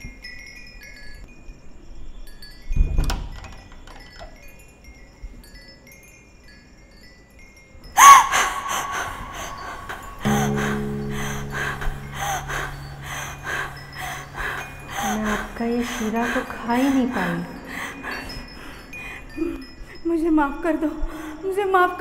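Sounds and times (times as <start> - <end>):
metal wind chime tinkling: 0.0 - 2.8, 3.5 - 22.0
woman screaming: 8.0 - 17.4
low droning music: 9.9 - 18.6.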